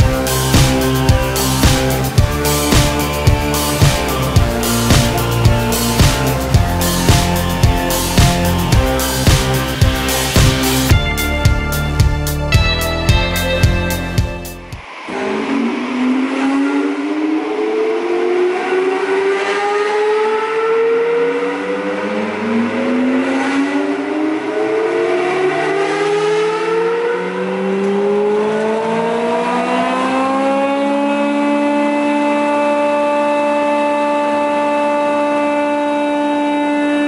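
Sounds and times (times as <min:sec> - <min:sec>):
planer motor whine: 0:00.0 - 0:11.0, 0:14.8 - 0:37.0.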